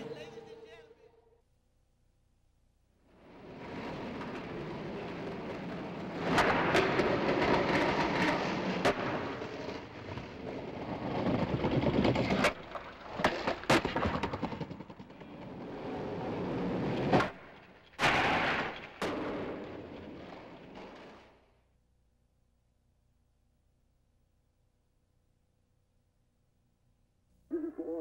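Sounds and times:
skateboard wheels rolling on concrete: 0:03.0 - 0:21.8
skateboard slapping down: 0:03.5 - 0:21.3.

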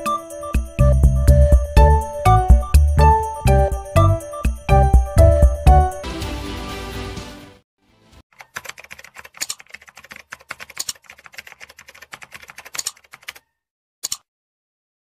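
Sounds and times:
keyboard key clicks: 0:08.4 - 0:13.4
short click: 0:14.0 - 0:14.3.

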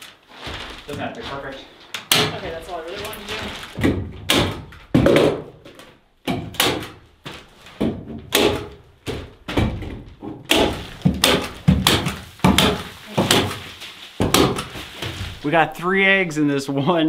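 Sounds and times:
knocks and thuds: 0:02.1 - 0:15.4.

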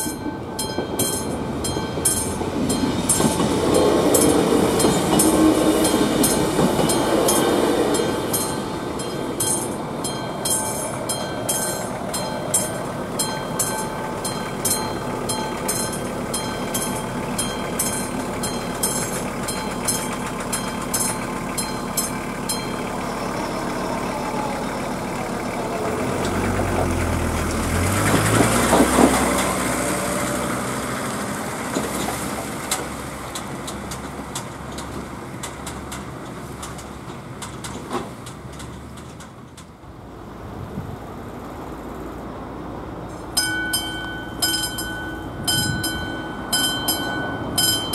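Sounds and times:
crossing warning bell ringing: 0:00.0 - 0:26.5, 0:43.1 - 0:47.9
train rumble: 0:00.0 - 0:47.9
truck engine revving: 0:02.2 - 0:32.0.

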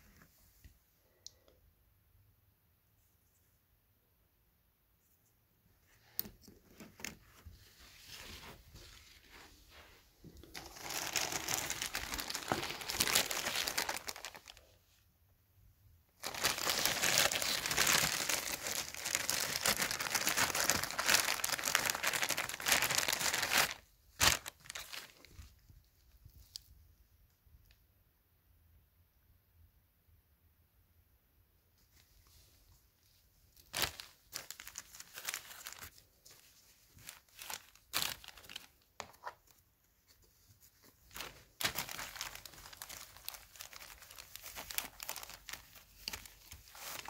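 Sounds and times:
plastic wrapper crinkling: 0:08.0 - 0:14.8, 0:16.2 - 0:25.7, 0:33.6 - 0:47.0.

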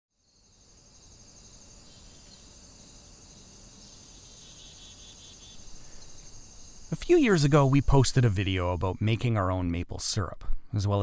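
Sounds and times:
crickets trilling: 0:00.2 - 0:11.0.

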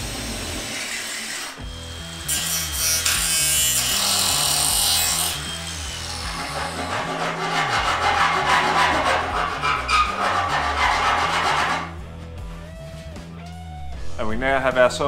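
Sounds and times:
power tool on sheet metal: 0:00.0 - 0:12.0
hand file rasping metal: 0:00.3 - 0:12.0
background music with bass: 0:01.6 - 0:15.0.

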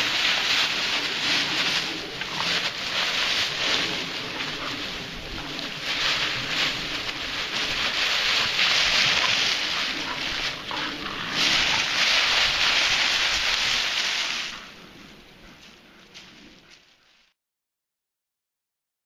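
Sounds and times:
dry leaves crunching and rustling: 0:00.0 - 0:14.8.

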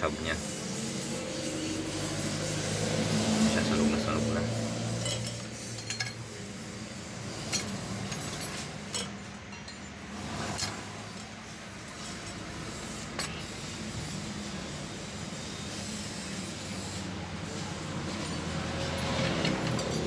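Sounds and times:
metal clutch parts clinking: 0:03.5 - 0:14.4, 0:17.6 - 0:20.0.

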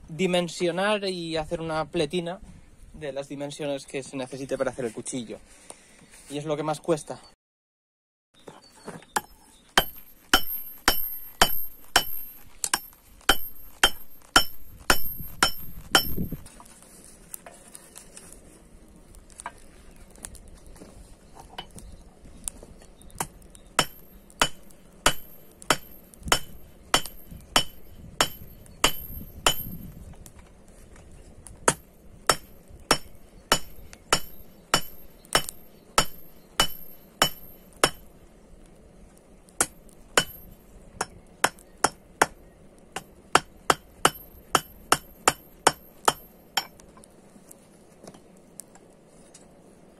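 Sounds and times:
hammer striking steel on anvil: 0:09.2 - 0:16.3, 0:23.2 - 0:29.8, 0:31.7 - 0:38.1, 0:39.6 - 0:42.4, 0:43.0 - 0:46.8.

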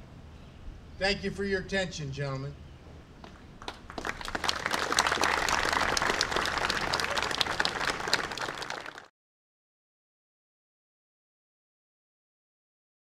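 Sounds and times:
audience applauding: 0:03.6 - 0:09.1.

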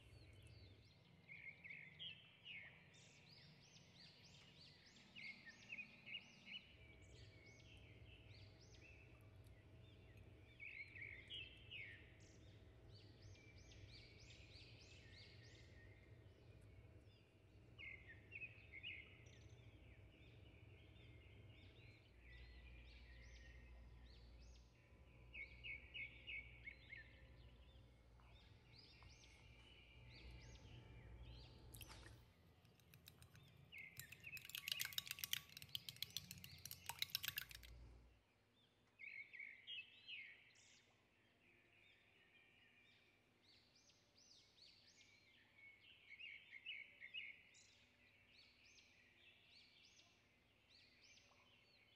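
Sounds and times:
birds chirping: 0:18.1 - 0:37.9
spoon clinking against bowl: 0:32.8 - 0:37.7.

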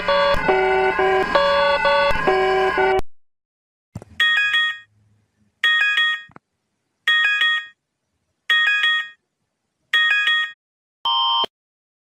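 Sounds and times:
alarm clock beeping: 0:00.0 - 0:03.0, 0:04.2 - 0:04.9.

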